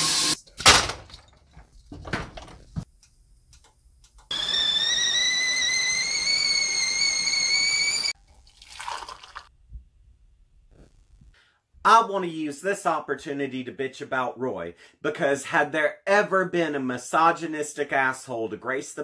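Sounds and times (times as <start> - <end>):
kettle whistling: 4.3 - 8.2.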